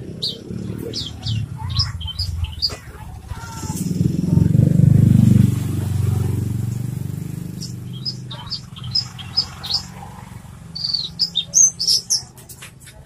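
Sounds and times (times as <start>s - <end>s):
bird chirping: 0.0s - 4.4s, 6.7s - 12.6s
motorcycle engine running: 0.0s - 13.0s.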